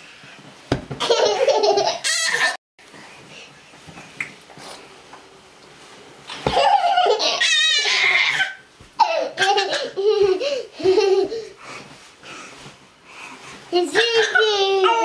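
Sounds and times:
young children laughing: 6.5s - 11.6s.

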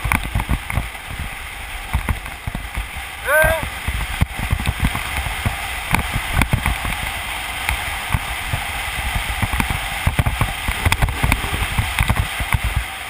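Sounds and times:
wheels rolling on asphalt: 0.0s - 13.0s
wind rushing over microphone: 0.0s - 13.0s
low buffeting thumps: 8.1s - 13.0s.

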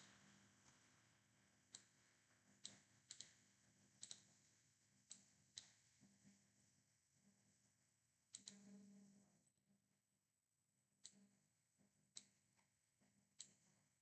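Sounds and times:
computer mouse clicks: 1.7s - 2.0s, 2.6s - 3.4s, 4.0s - 4.4s, 5.0s - 5.8s, 8.3s - 8.8s, 13.4s - 13.6s.

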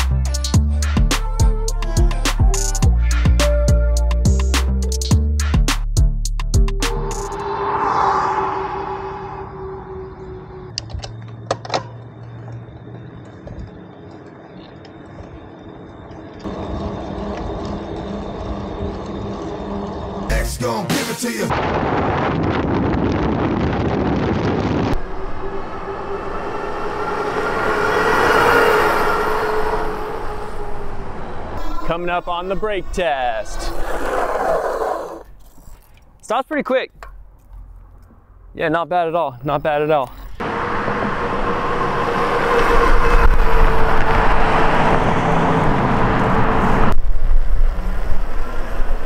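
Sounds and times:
tyres humming on road: 6.0s - 22.0s, 24.4s - 36.2s, 36.9s - 49.0s
wind rushing over microphone: 7.0s - 10.8s, 21.5s - 35.2s, 40.4s - 49.0s
electric motor whine: 16.4s - 20.3s.

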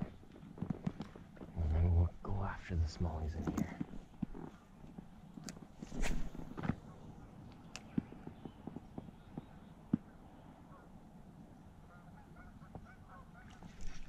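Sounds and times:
geese honking: 10.5s - 11.0s, 11.6s - 14.0s.

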